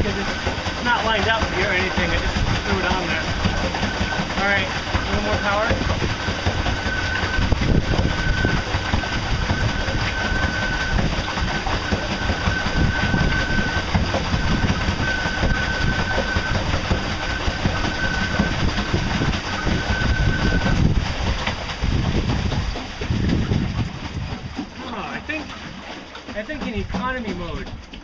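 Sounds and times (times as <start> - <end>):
rough rumble: 0.0 - 28.0
electric motor whine: 2.6 - 21.0.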